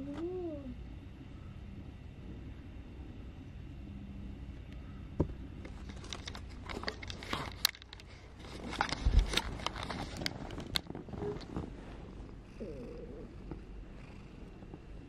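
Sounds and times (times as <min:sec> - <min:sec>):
camera handling rustling and clicking: 0:05.8 - 0:10.9.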